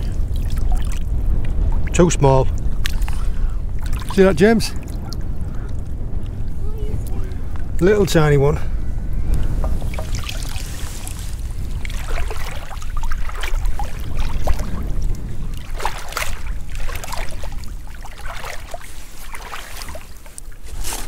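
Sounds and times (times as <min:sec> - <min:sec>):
seawater sloshing and splashing: 0:00.0 - 0:02.0, 0:02.7 - 0:05.9, 0:09.4 - 0:21.0
low rumble: 0:00.0 - 0:18.4.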